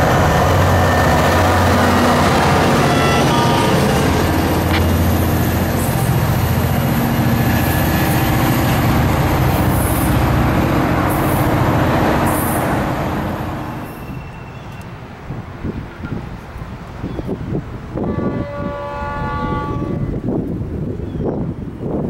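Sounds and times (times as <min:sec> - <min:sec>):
diesel locomotive engine humming: 0:00.0 - 0:21.9
wheel and rail noise: 0:00.0 - 0:22.0
high-pitched squeals: 0:00.1 - 0:08.6.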